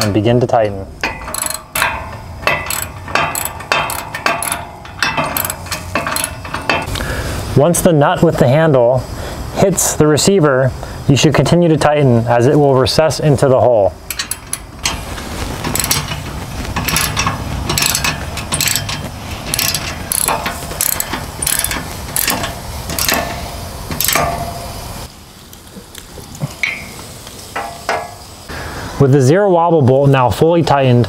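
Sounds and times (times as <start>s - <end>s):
ratchet wrench clicking: 1.0s - 7.0s, 14.1s - 15.0s, 15.7s - 24.4s.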